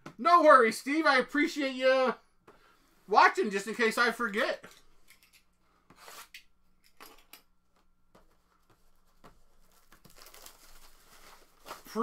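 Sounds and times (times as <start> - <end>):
faint rustles and taps of cards: 7.6 - 10.9.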